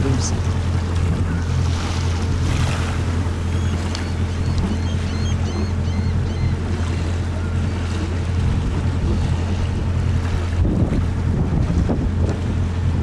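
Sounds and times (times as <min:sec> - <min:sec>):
boat engine droning: 0:00.0 - 0:13.0
water rushing past hull: 0:00.0 - 0:13.0
wind on microphone: 0:07.7 - 0:13.0.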